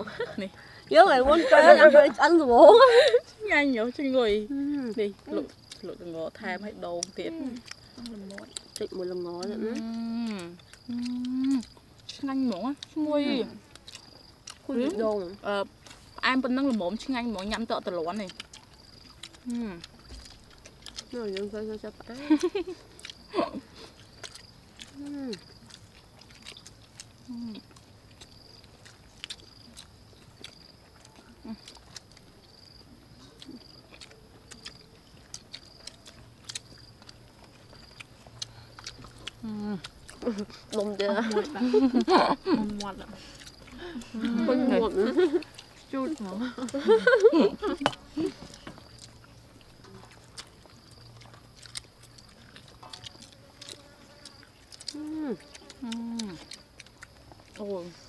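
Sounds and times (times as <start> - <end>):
wet chewing: 0.0 - 58.0
lip smacks: 7.0 - 12.2, 17.5 - 44.4, 45.2 - 57.6
closed-mouth hums: 7.3 - 13.6, 18.5 - 25.9, 26.6 - 28.7, 29.4 - 57.6.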